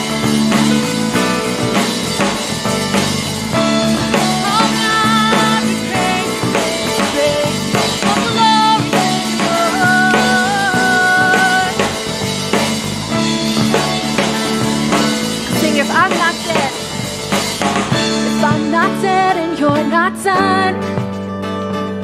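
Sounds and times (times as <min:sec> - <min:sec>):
rock band playing: 0:00.0 - 0:22.0
woman singing into a microphone: 0:04.4 - 0:12.0, 0:18.2 - 0:21.0.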